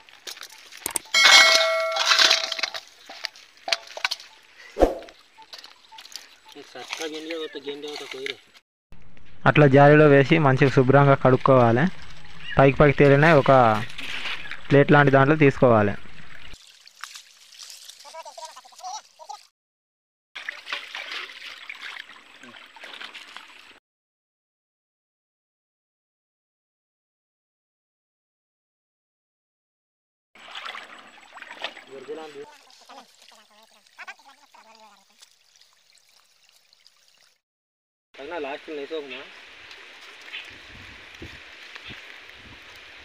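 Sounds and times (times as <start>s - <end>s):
water trickling and splashing: 0.0s - 8.6s, 10.4s - 19.5s, 20.4s - 23.8s, 30.4s - 37.4s, 38.2s - 43.0s
metallic clang ringing: 1.2s - 2.8s.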